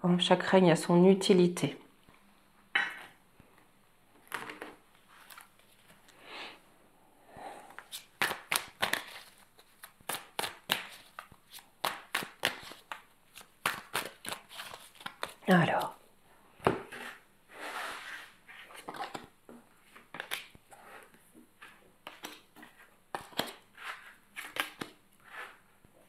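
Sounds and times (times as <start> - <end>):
cards being shuffled: 4.3 - 6.0, 7.8 - 16.0, 18.0 - 19.3, 19.9 - 20.6, 21.6 - 25.6.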